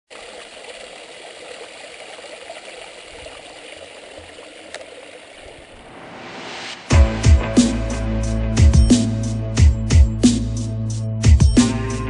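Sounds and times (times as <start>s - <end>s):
stream splashing over rocks: 0.1s - 5.8s.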